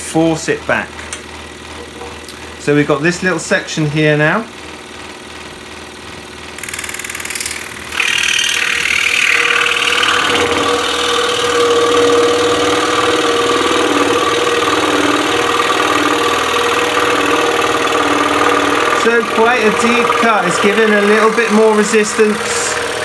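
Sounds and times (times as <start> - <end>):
scroll saw cutting wood: 6.6 - 23.0.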